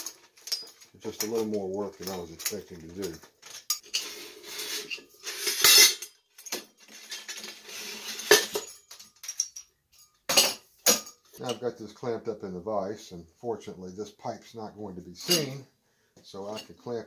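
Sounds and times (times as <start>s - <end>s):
metal scraping and clanking: 0.0s - 11.7s.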